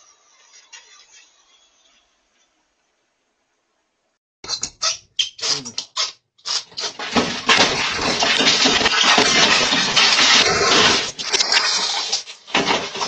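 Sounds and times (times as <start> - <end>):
cash register scraping and rattling: 6.6 - 13.0.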